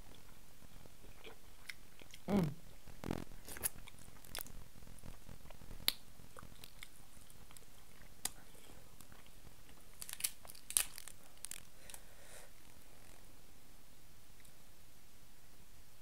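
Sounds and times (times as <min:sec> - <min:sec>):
chewing: 0:01.0 - 0:02.3, 0:03.0 - 0:11.7.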